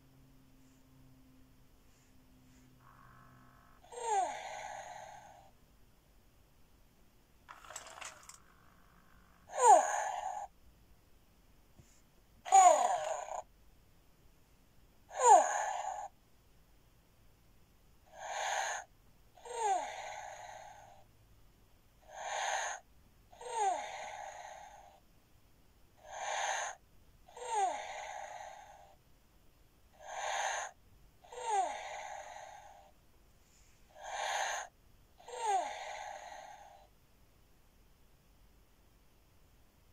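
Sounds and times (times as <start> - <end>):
toy breathing sound: 2.0 - 5.5, 7.5 - 10.5, 12.5 - 13.4, 15.1 - 16.1, 18.1 - 21.0, 22.0 - 22.8, 26.0 - 29.0, 30.0 - 32.9, 33.9 - 36.9.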